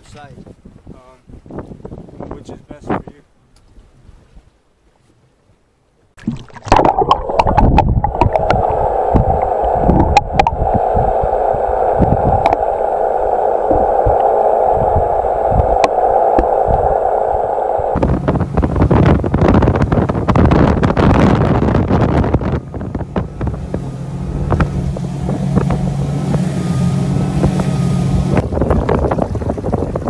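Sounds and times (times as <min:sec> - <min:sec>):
wind buffeting microphone: 0:00.0 - 0:04.5, 0:06.8 - 0:30.0
muffled underwater water rush: 0:06.2 - 0:30.0.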